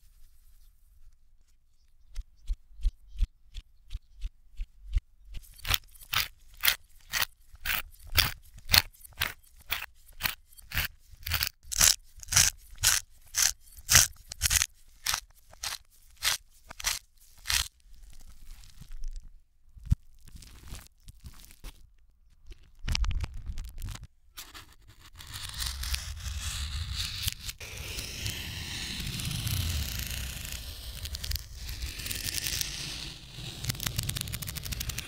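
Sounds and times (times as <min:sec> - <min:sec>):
spice mill grinding reversed: 0:05.6 - 0:17.7, 0:25.1 - 0:35.0.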